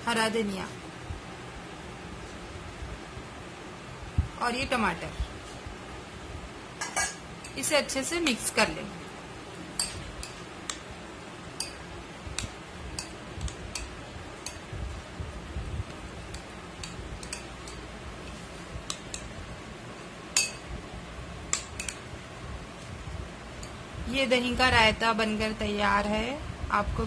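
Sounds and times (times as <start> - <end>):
spoon clinking on glass bowl: 6.8 - 7.6, 11.6 - 11.8, 20.4 - 20.6.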